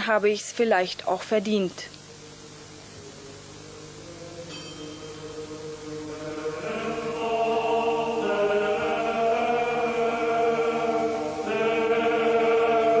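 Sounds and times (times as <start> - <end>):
choral chanting: 2.9 - 13.0.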